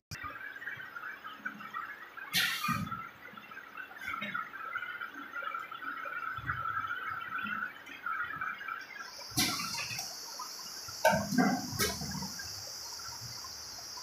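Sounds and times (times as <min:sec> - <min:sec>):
water pouring and splashing into tank: 0:00.1 - 0:14.0
loud hiss: 0:09.2 - 0:14.0.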